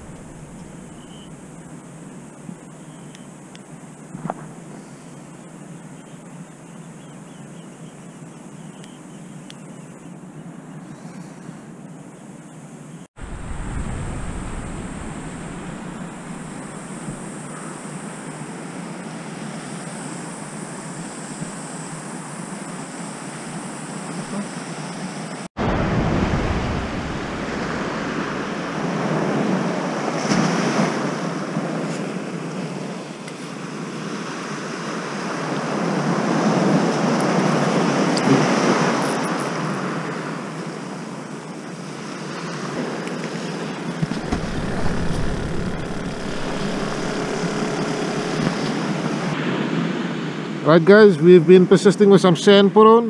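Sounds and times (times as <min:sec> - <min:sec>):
surf breaking on shore: 0:00.0 - 0:01.6, 0:13.2 - 0:17.4, 0:25.6 - 0:31.8, 0:44.0 - 0:49.8
wind: 0:00.0 - 0:53.0.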